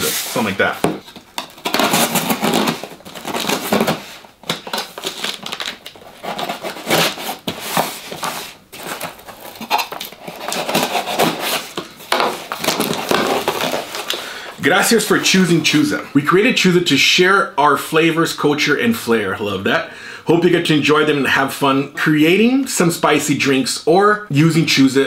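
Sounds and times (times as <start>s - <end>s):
scratching and ripping cardboard: 0.0s - 14.2s
knife slicing packing tape: 1.6s - 4.0s, 4.6s - 11.8s.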